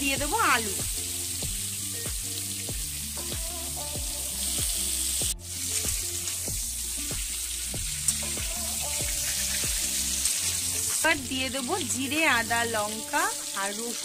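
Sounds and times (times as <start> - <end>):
background music with beat: 0.0 - 12.6
vegetables sizzling in oil: 0.0 - 14.0
metal spatula stirring: 8.0 - 11.1.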